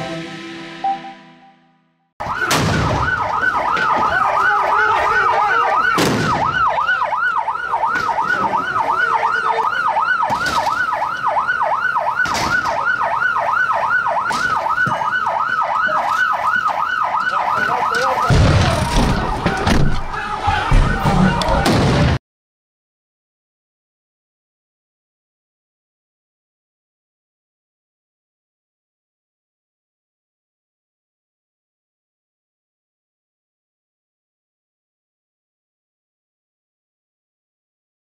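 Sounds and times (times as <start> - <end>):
police siren yelping: 2.2 - 21.8.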